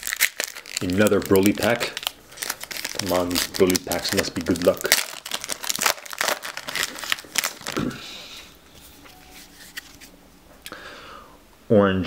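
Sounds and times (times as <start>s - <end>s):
foil wrapper tearing and crinkling: 0.0s - 7.9s.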